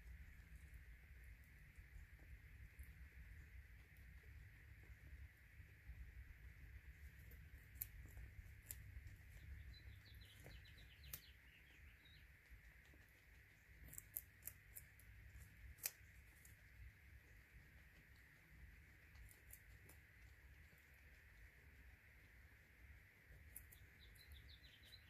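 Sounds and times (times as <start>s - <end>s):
guinea pigs crunching pellets: 0.0s - 25.0s
faint high chirps: 7.1s - 14.8s, 17.4s - 25.0s.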